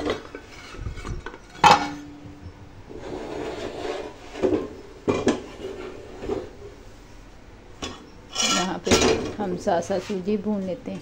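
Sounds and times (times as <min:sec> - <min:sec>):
metal pots clanking: 0:00.0 - 0:06.6, 0:07.8 - 0:09.4
metal scraping: 0:00.0 - 0:06.9, 0:07.8 - 0:10.3.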